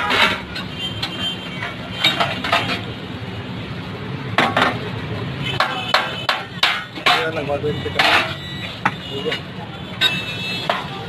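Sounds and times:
metal utensils clinking on cookware: 0.0s - 2.9s, 5.5s - 11.0s.

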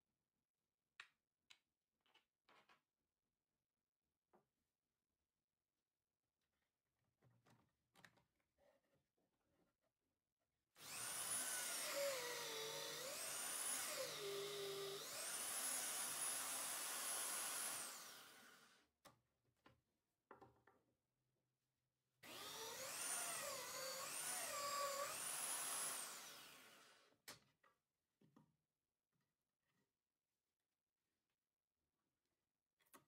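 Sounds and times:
drill press motor whine: 10.8s - 18.8s, 22.3s - 27.0s.

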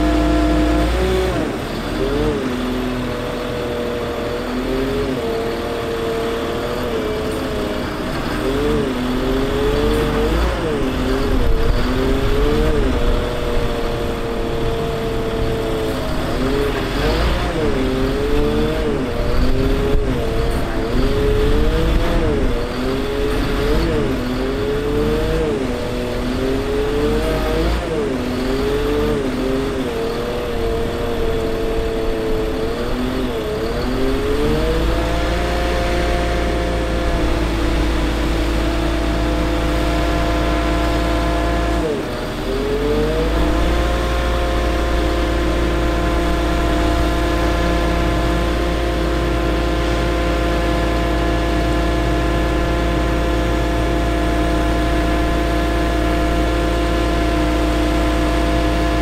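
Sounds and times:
diesel engine and hydraulics droning: 0.0s - 59.0s.

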